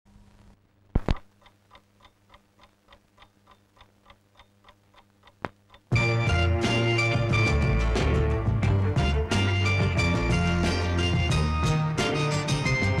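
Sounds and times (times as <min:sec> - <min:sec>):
sharp clicks: 0:00.9 - 0:05.9
faint regular ticking: 0:01.0 - 0:06.0
music: 0:05.9 - 0:13.0.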